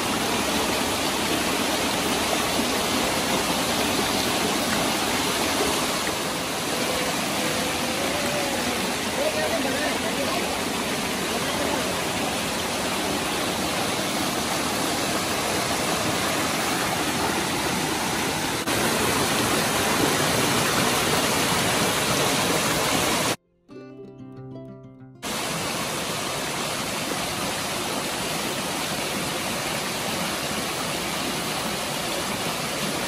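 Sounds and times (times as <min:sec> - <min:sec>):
waterfall rushing: 0:00.0 - 0:23.4, 0:25.2 - 0:33.0
soft music: 0:23.4 - 0:25.2.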